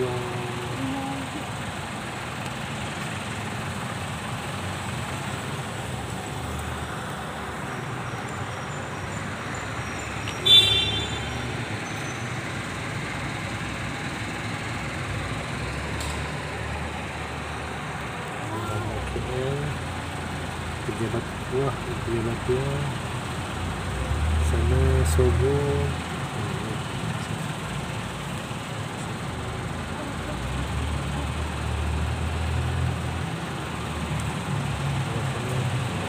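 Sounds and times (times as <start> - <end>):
city street traffic: 0.0 - 36.0
vehicle horn toot: 10.4 - 11.5.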